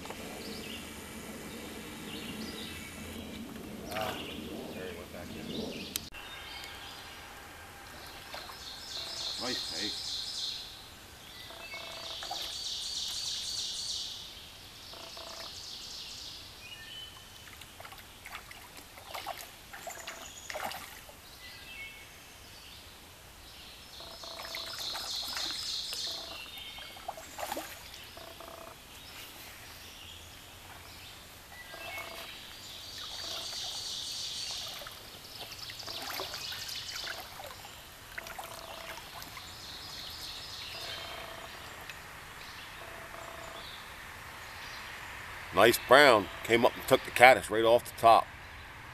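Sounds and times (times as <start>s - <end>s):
water splashes: 0.0s - 10.3s, 12.1s - 13.3s, 17.1s - 21.3s, 24.2s - 28.4s, 30.4s - 41.0s
stream water running: 0.0s - 48.9s.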